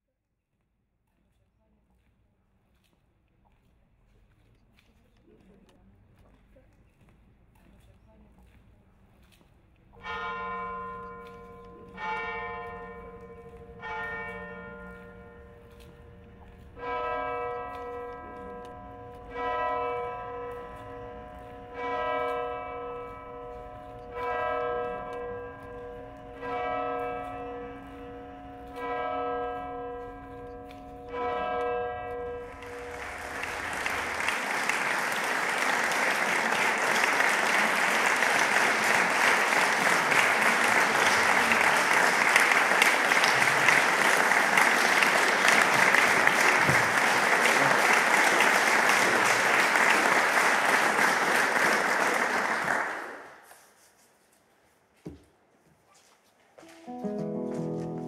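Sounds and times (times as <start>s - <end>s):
audience applause: 32.4s - 53.4s.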